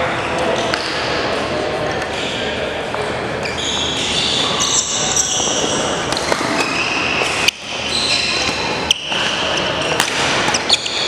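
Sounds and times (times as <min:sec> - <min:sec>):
shoes squeaking on wooden floor: 0:03.4 - 0:11.0
racket hitting shuttlecock: 0:05.7 - 0:11.0.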